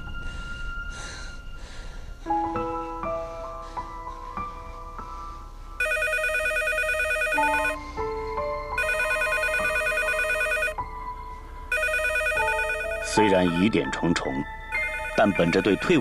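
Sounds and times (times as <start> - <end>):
soft piano music: 0.0 - 16.0
desk telephone ringing: 5.8 - 7.8, 8.8 - 10.8, 11.7 - 13.3, 14.7 - 16.0.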